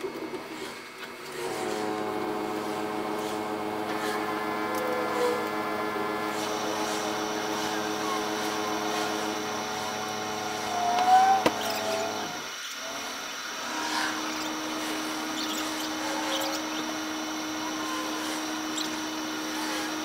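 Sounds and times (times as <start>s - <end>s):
machine motor hum: 0.0s - 20.0s.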